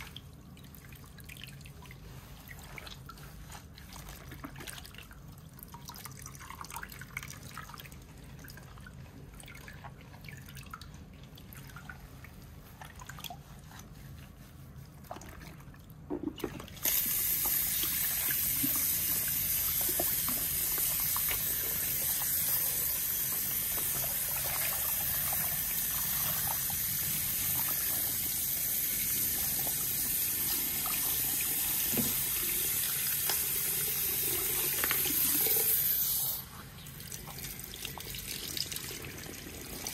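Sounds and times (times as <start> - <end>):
hand shower spraying into basin: 16.8 - 36.5.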